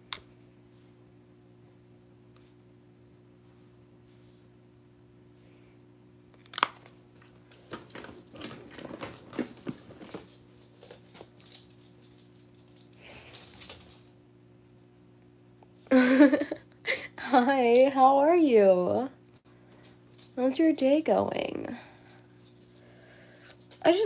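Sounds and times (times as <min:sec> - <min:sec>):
low steady hum: 0:00.0 - 0:24.0
rustling and crackling: 0:06.5 - 0:15.1
woman speaking: 0:17.2 - 0:19.2, 0:20.4 - 0:21.9, 0:23.8 - 0:24.0.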